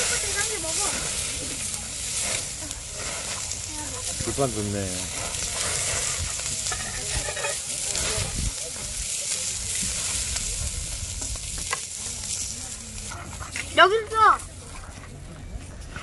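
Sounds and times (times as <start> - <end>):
meat sizzling on grill: 0.0 - 14.6.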